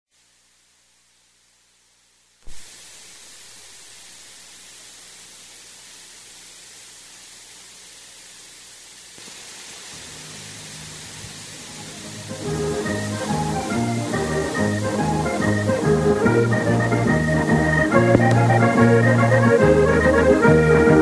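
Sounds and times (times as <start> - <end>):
tape hiss: 0.1 - 21.0
soft music: 10.0 - 21.0.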